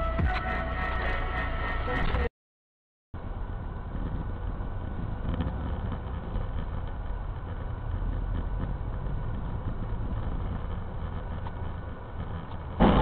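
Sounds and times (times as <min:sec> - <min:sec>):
car engine and road noise: 0:03.2 - 0:13.0.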